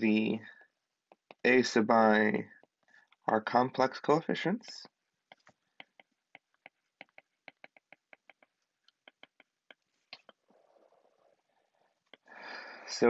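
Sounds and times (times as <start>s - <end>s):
stylus tapping on glass screen: 5.3s - 10.4s.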